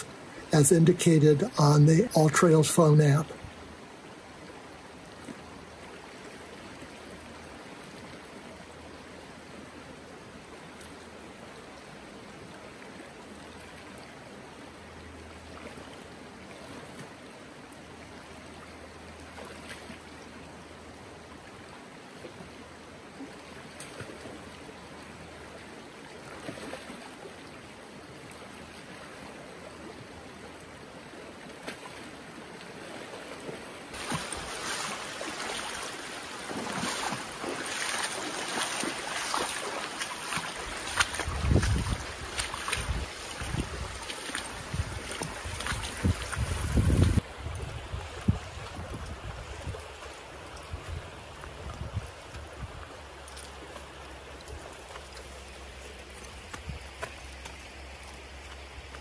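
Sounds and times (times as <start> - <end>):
faint water splashes: 0.0 - 59.0
river flowing over rocks: 0.0 - 59.0.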